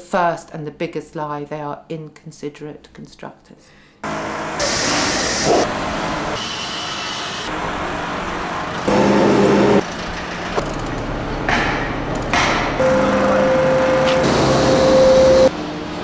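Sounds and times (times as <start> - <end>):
steady machine whine: 4.0 - 10.0, 10.6 - 16.0
diesel machinery running: 4.0 - 16.0.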